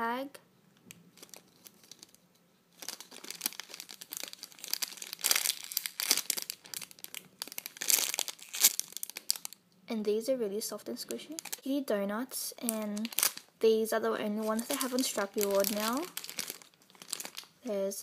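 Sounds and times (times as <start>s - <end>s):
plastic bags crinkling: 0.9s - 9.6s, 11.0s - 11.6s, 12.6s - 13.5s, 14.4s - 17.6s.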